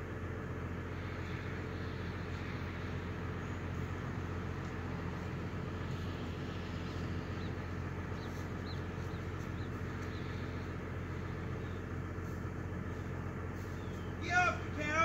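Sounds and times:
car exhaust idling drone: 0.0s - 15.0s.

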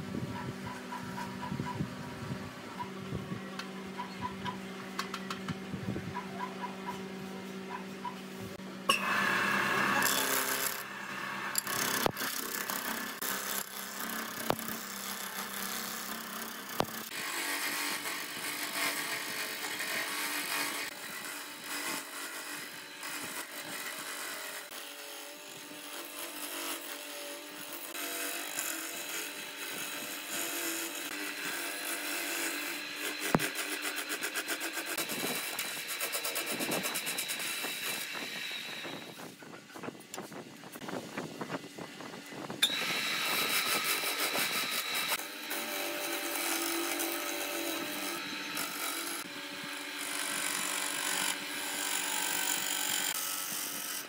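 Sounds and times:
tool scraping spinning wood: 0.2s - 54.0s
lathe motor hum: 9.0s - 15.8s, 42.6s - 53.0s.

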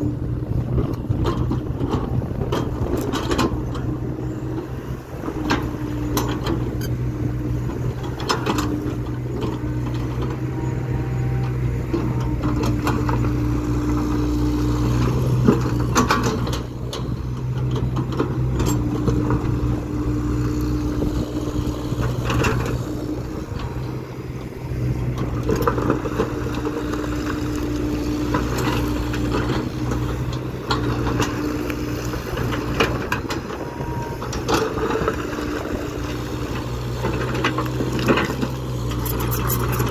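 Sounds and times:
excavator diesel engine running: 0.0s - 39.9s
hydraulic whine: 0.0s - 39.9s
steel bucket scraping stone: 39.0s - 39.9s.

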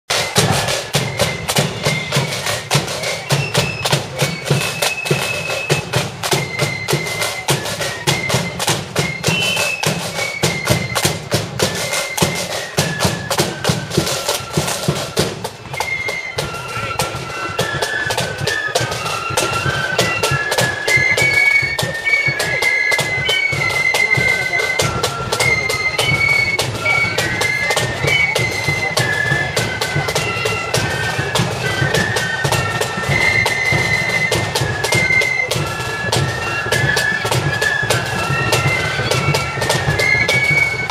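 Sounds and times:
flute band playing: 0.1s - 40.9s
side drum beats: 0.1s - 40.9s.

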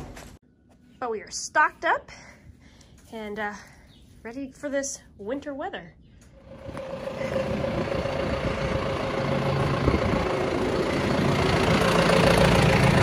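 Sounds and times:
tractor diesel engine idling: 6.5s - 13.0s.

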